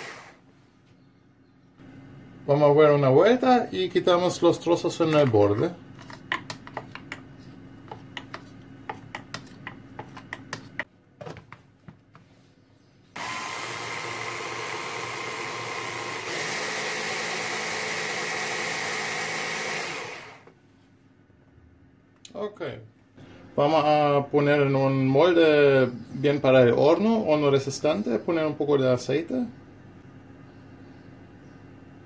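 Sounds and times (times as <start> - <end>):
food chopper motor running: 0.0 - 0.4, 13.2 - 20.5
spoon scraping plastic bowl: 5.9 - 10.9.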